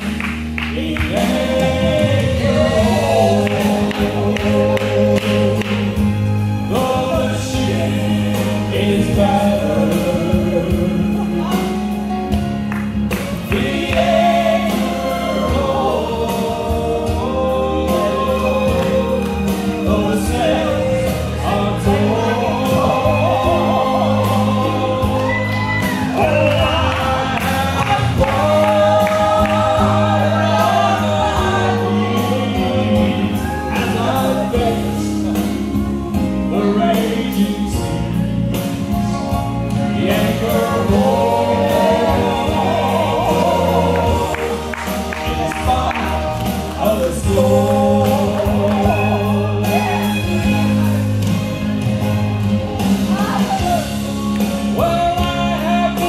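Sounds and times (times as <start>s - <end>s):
man and woman singing duet: 0.0s - 12.4s, 13.2s - 51.3s, 52.8s - 56.0s
musical accompaniment: 0.0s - 56.0s.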